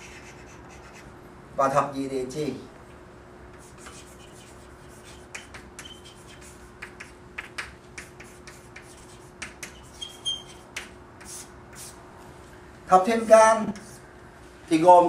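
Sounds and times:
chalk tapping and scratching: 0:00.0 - 0:01.1, 0:03.5 - 0:12.0, 0:13.3 - 0:14.0.

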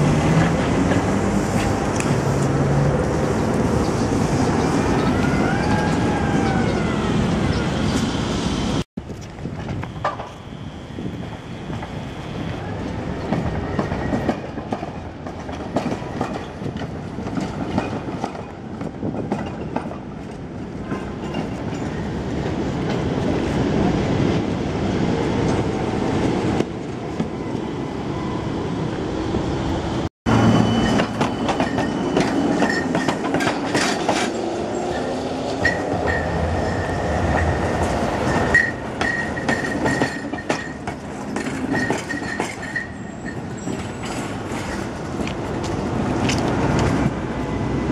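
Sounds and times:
tram wheels rumbling on rails: 0:00.0 - 0:47.9
high wheel squeal: 0:30.3 - 0:33.2, 0:34.7 - 0:40.9, 0:41.6 - 0:44.9.

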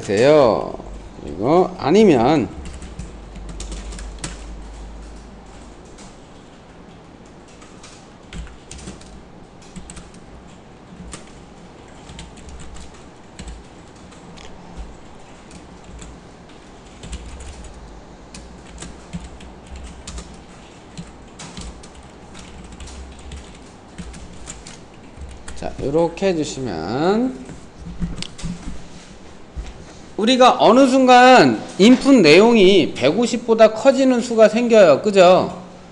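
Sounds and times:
keyboard typing: 0:00.0 - 0:29.0
low steady hum: 0:00.0 - 0:34.2.

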